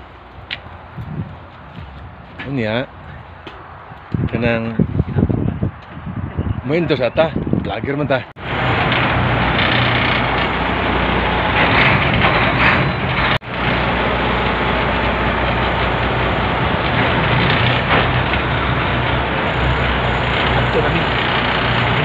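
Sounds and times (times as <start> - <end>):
boat engine running: 8.4 - 22.0.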